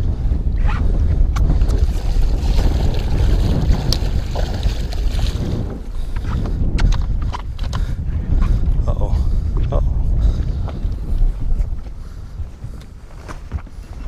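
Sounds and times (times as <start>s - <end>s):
wind buffeting microphone: 0.0s - 14.0s
fish splashing at water surface: 1.8s - 5.9s.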